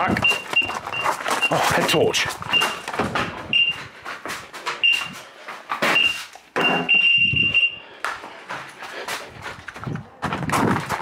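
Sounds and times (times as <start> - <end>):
bite alarm beeping: 0.0 - 3.9, 4.8 - 5.2, 5.8 - 7.8
knocks and rustling: 0.0 - 7.0, 9.4 - 11.0.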